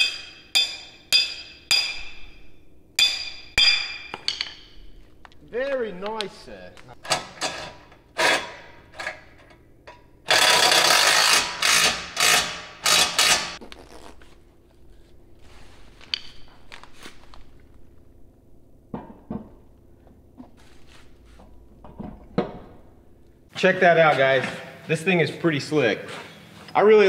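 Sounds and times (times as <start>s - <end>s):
ratchet wrench tightening bolts: 10.3s - 13.6s.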